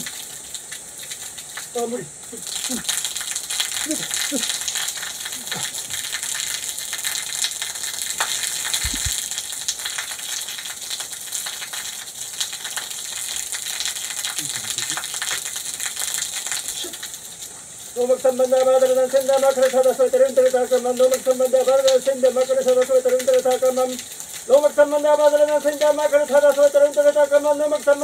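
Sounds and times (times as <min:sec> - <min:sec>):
water drops spattering: 0:00.0 - 0:17.5
waterfall pouring onto rock: 0:00.0 - 0:28.0.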